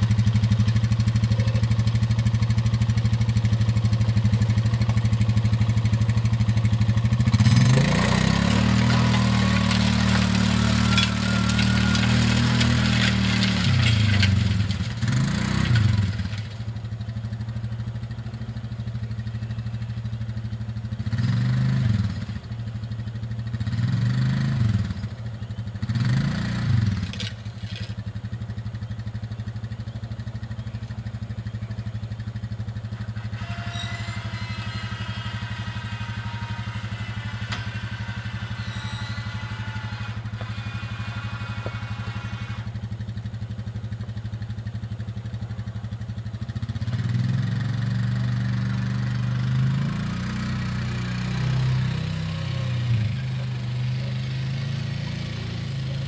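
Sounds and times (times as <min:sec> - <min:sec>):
small engine revving: 0:07.1 - 0:16.7, 0:21.0 - 0:22.4, 0:25.8 - 0:28.0, 0:32.9 - 0:42.9, 0:46.5 - 0:56.0.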